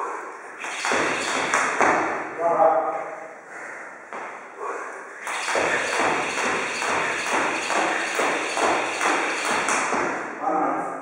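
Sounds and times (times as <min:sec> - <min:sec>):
jump rope slapping and feet landing: 0:00.6 - 0:02.3, 0:05.2 - 0:10.3.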